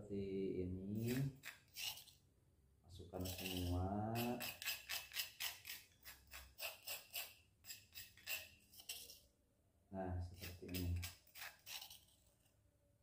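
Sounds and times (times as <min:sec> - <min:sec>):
spoon scraping stone mortar: 0:01.0 - 0:02.2, 0:03.2 - 0:09.3, 0:10.3 - 0:12.5.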